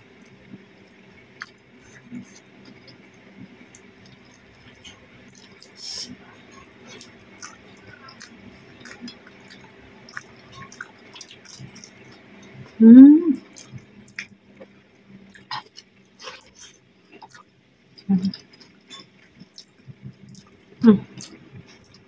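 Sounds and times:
wet chewing and lip smacks: 6.6 - 12.6
person humming mm: 12.8 - 13.4.

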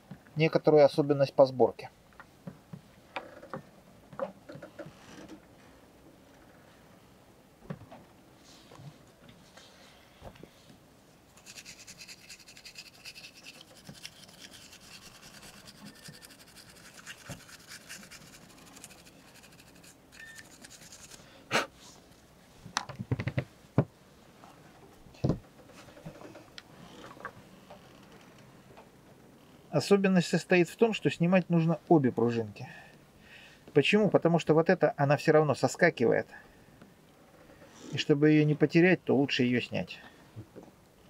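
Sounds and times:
toothbrush scrubbing plastic parts: 11.4 - 21.2.

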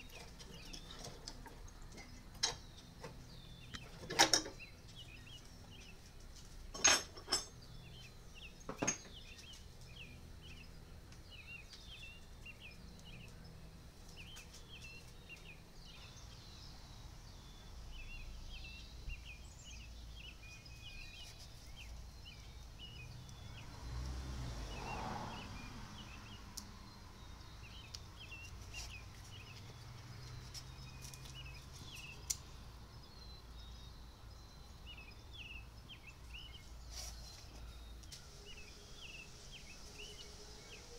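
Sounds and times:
birds chirping: 0.0 - 40.9.

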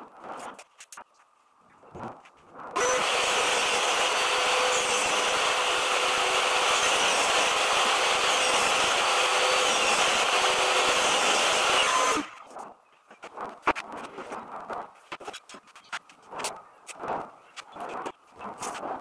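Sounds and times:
power tool motor whining: 2.8 - 12.5.

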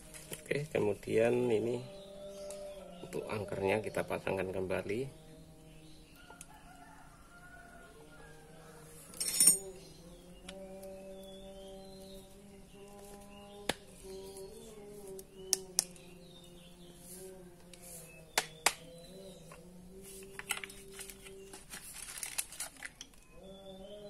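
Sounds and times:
metal tools clicking on housing: 9.1 - 9.7
crackly rustling: 19.4 - 23.3.

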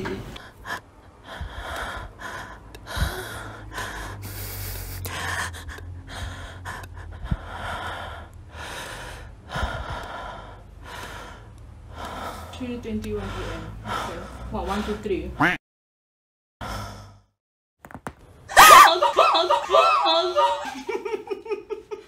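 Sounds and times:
steady low hum: 0.0 - 15.4
person breathing heavily: 0.4 - 15.1, 16.6 - 17.3.

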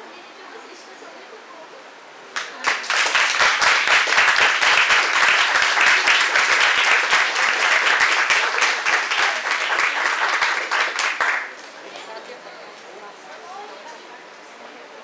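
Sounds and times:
crowd applauding: 2.4 - 11.8.

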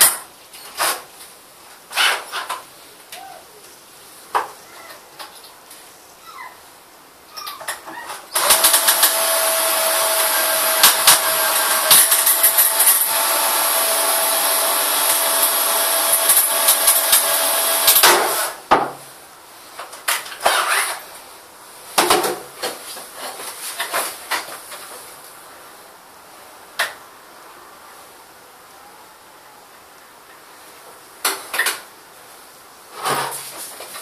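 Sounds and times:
cordless drill whining: 8.4 - 18.6.

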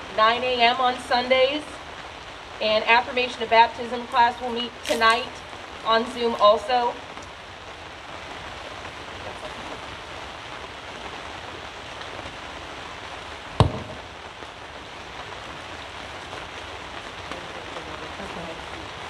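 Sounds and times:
rain on a canopy tent: 0.0 - 19.0
sharp thump: 13.6 - 14.0.

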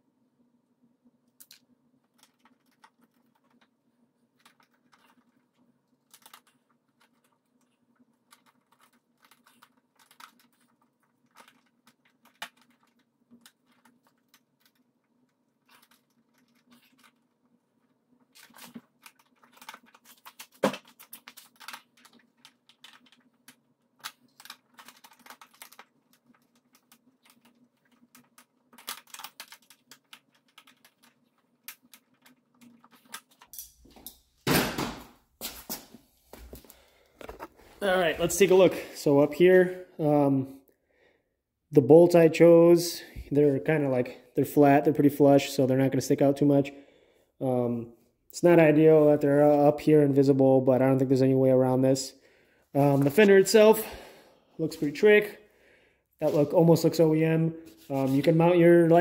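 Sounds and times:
small tools clicking on plastic: 18.2 - 34.2.

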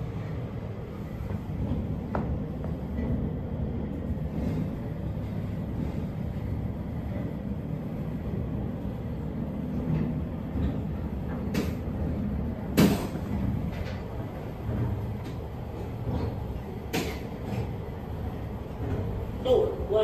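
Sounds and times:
elevator low rumble: 0.0 - 20.0
elevator clunk: 9.9 - 19.7.

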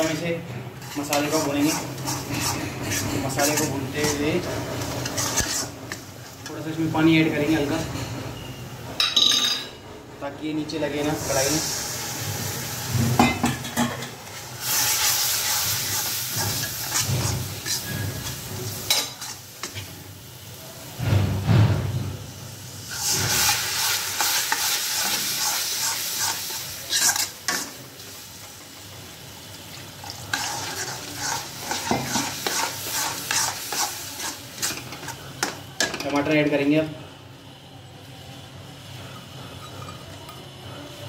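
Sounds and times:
masala sizzling: 0.0 - 8.9, 10.4 - 41.0
metal spatula scraping iron pan: 0.8 - 6.6, 14.8 - 19.9, 24.2 - 27.7, 30.3 - 35.2.

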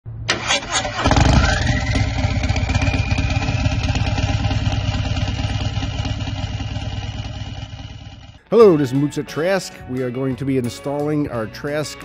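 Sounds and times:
motorcycle engine rumbling: 0.3 - 8.4
high whine: 1.0 - 8.4.

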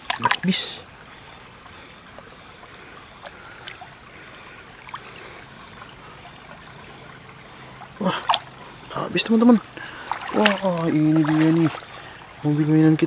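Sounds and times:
stream flowing over pebbles: 0.0 - 13.0
faint ticks: 1.5 - 4.0, 9.7 - 10.1.

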